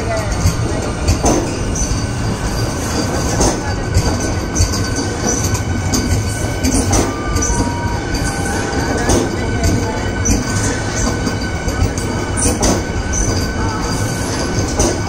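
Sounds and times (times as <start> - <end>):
train wheels rumbling on rail: 0.0 - 15.0
thin wheel squeals: 6.2 - 14.7.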